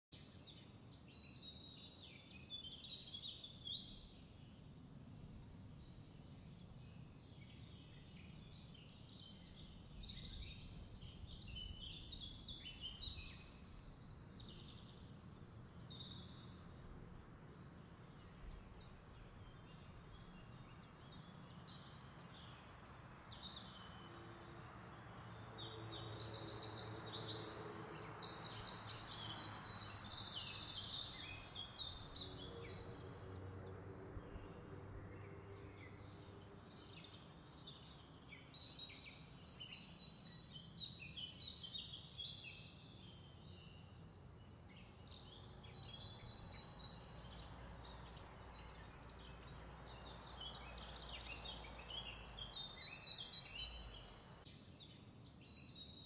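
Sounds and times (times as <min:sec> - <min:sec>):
birds chirping and singing: 0:00.3 - 0:16.8, 0:17.5 - 0:56.0
bird rapid trilling song: 0:25.1 - 0:56.0.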